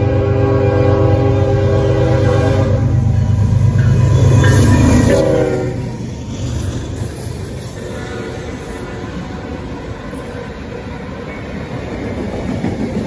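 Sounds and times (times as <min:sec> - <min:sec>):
train horn: 0:00.0 - 0:03.2, 0:03.8 - 0:05.9, 0:07.8 - 0:09.7
locomotive engine rumble: 0:00.0 - 0:13.0.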